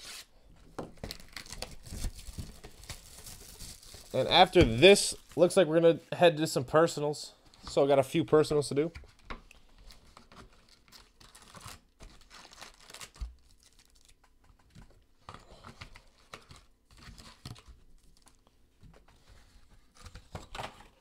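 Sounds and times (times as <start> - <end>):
foil packs crinkling: 1.0 - 5.4, 9.8 - 14.2.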